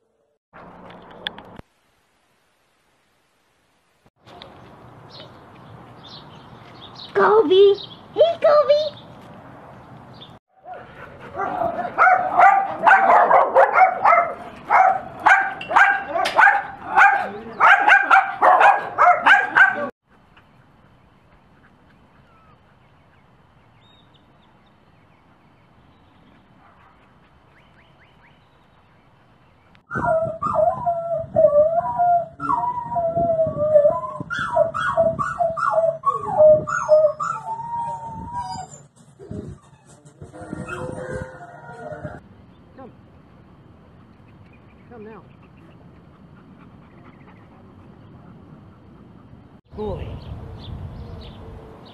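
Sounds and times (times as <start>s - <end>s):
dogs barking and yipping: 10.6s - 20.0s, 33.8s - 42.2s
puppy howling yowls: 29.9s - 42.2s.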